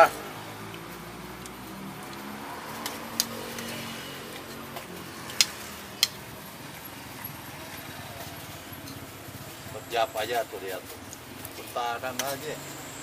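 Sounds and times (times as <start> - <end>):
vehicle engine humming: 0.0 - 13.0
sharp clicks: 5.2 - 6.2.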